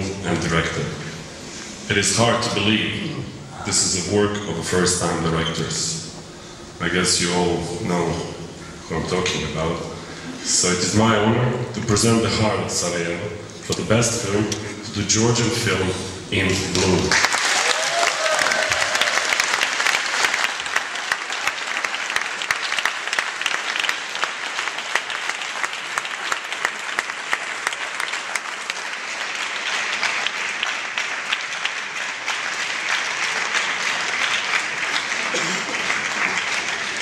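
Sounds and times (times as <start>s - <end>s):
audience applauding: 16.8s - 37.0s.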